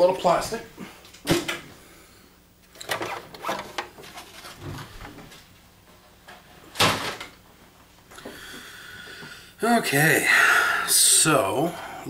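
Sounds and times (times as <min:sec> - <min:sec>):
plastic scraping and creaking: 0:02.8 - 0:05.4.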